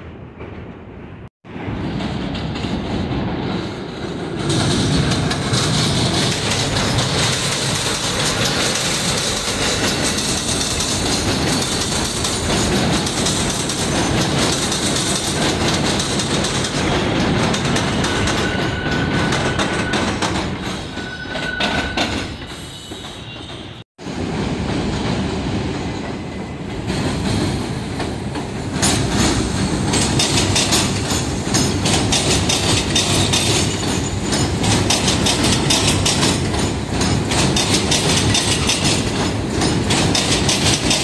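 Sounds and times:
subway train wheels clattering: 0.0s - 41.0s
high wheel squeals: 18.1s - 23.8s.

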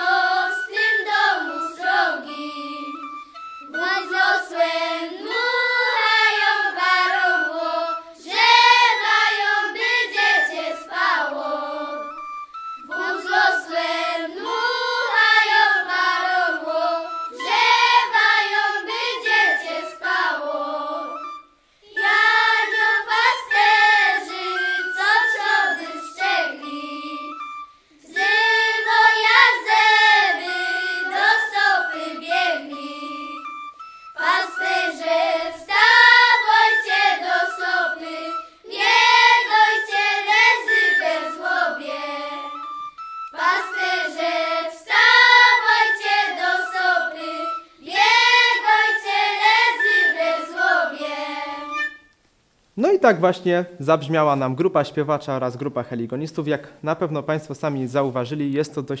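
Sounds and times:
children singing in unison: 0.0s - 12.2s, 12.8s - 33.6s, 34.2s - 52.0s
button accordion: 22.0s - 52.1s.

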